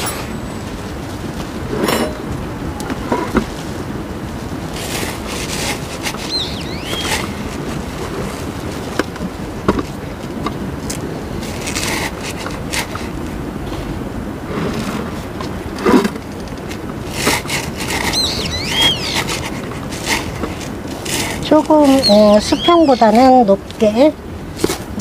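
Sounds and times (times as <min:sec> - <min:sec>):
wind rumble on microphone: 0:00.0 - 0:25.0
bird chirping: 0:06.2 - 0:07.7, 0:18.0 - 0:19.5, 0:21.8 - 0:23.3.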